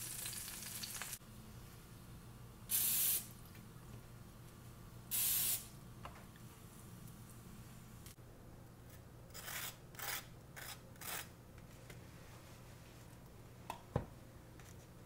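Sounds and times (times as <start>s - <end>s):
frying sizzle: 0.0s - 1.2s
aerosol can spraying: 2.7s - 3.3s.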